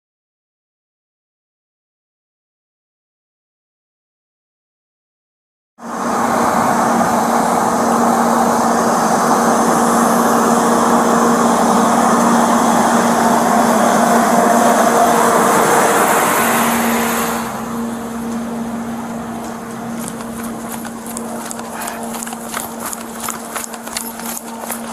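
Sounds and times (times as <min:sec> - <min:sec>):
fire engine engine drone: 0:05.8 - 0:24.9.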